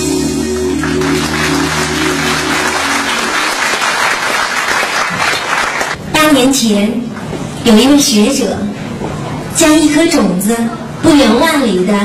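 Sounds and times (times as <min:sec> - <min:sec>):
electronic backing music: 0:00.0 - 0:04.6
audience applauding: 0:00.5 - 0:06.0.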